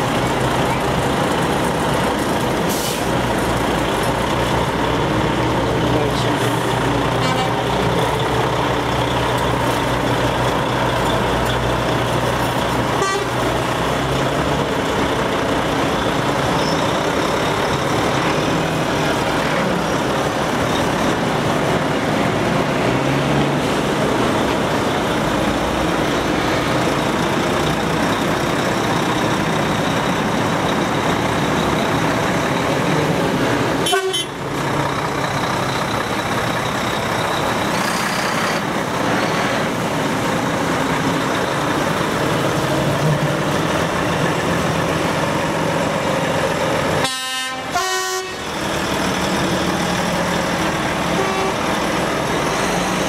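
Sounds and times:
trucks driving past: 0.0 - 53.0
truck horn toots: 7.2 - 7.6, 12.9 - 13.4, 33.8 - 34.4, 47.0 - 48.5, 51.1 - 51.7.

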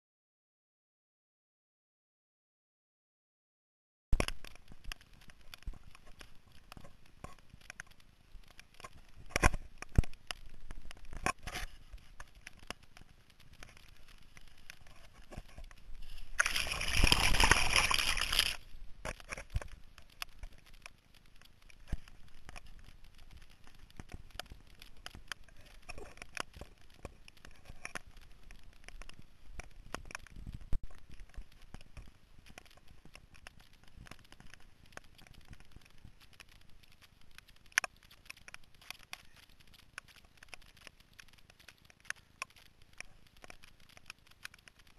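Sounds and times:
loud splashing rush: 16.4 - 18.6.

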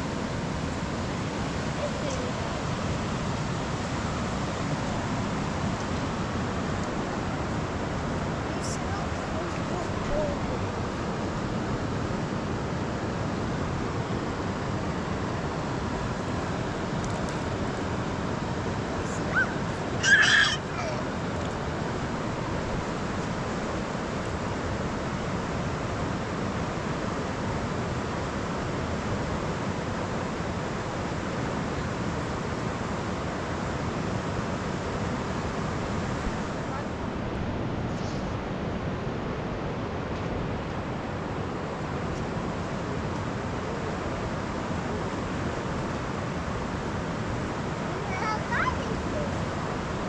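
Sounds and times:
river water rushing: 0.0 - 50.0
short harsh cry: 19.3 - 21.0.

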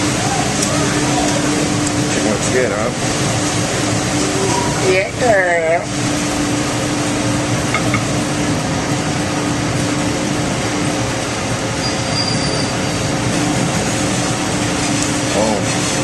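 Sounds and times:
kitchen ventilation roar: 0.0 - 16.0
low hum: 5.4 - 11.2.

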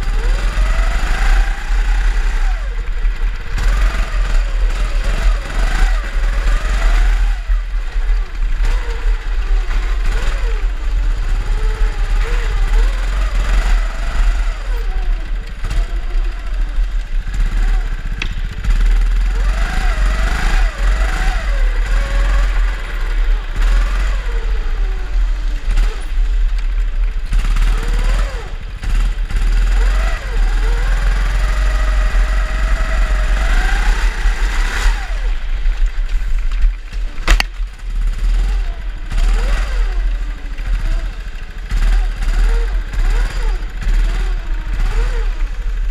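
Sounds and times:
heavy low rumble: 0.0 - 29.7
kart engines revving: 0.0 - 45.9.

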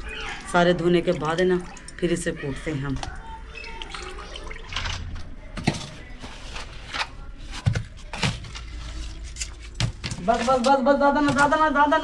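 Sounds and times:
water splashing in a bucket: 0.0 - 5.3.

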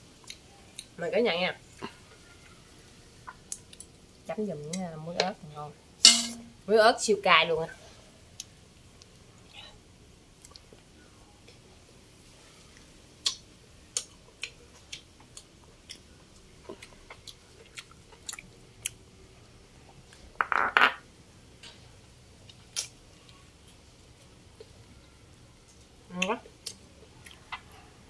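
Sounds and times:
person chewing with smacking: 10.4 - 10.8, 12.8 - 19.0, 26.4 - 27.8.

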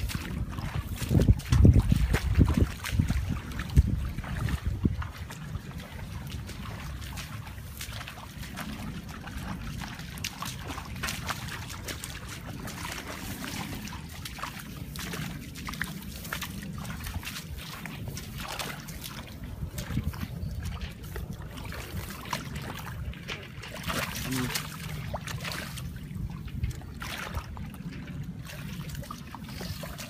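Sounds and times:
muddy water sloshing and splashing: 0.0 - 30.0
steady low rumble: 0.0 - 30.0.

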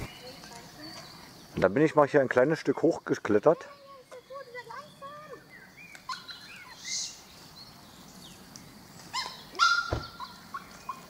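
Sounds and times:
birds chirping faintly: 0.0 - 11.0
dog barking: 9.2 - 11.0.

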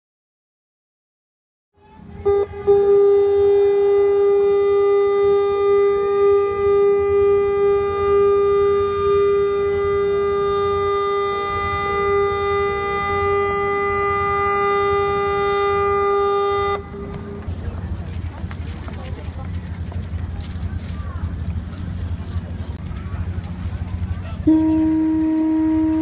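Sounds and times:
ship's horn long blast: 2.0 - 18.3, 22.9 - 26.0.

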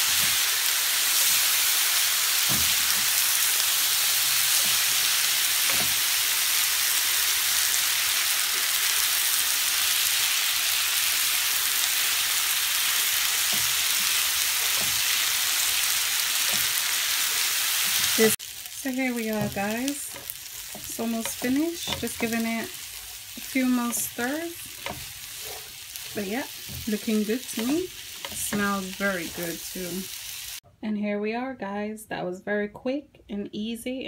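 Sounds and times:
food sizzling in frying pan: 0.0 - 30.6
spatula knocking against pan: 19.4 - 22.4.

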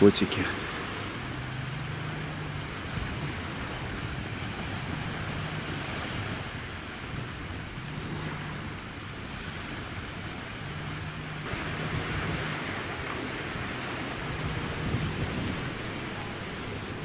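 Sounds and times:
sea surf washing on shore: 0.0 - 17.0
wind on microphone: 0.0 - 17.0
low hum: 0.5 - 17.0.

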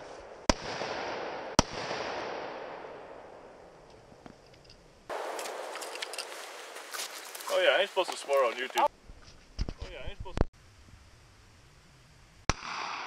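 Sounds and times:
handgun shots with echo: 5.1 - 6.1, 12.5 - 13.0.

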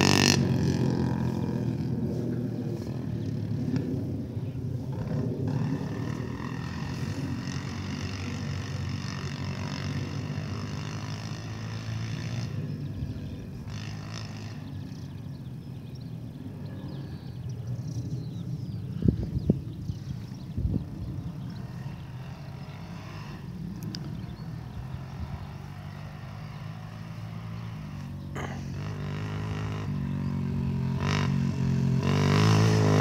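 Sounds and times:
lawn mower engine running: 0.0 - 3.8.

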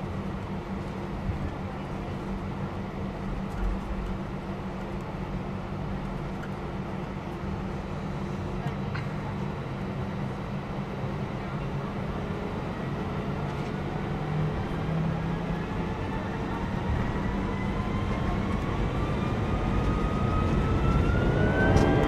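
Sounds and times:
jet engine rumble in cabin: 0.0 - 22.0
rising engine whine: 12.4 - 22.0.

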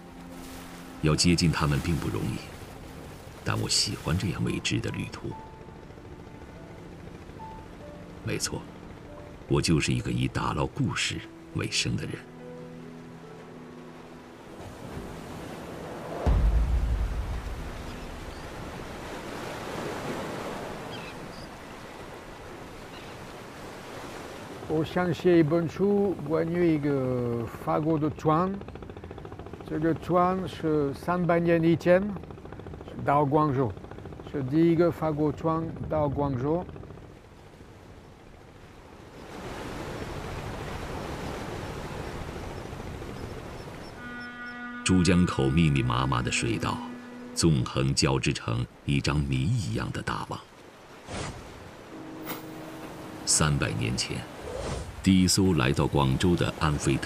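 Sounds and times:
waves washing on open water: 0.0 - 5.4, 7.2 - 44.1, 45.0 - 57.0
wind: 0.0 - 57.0
deep boom: 16.2 - 18.5.

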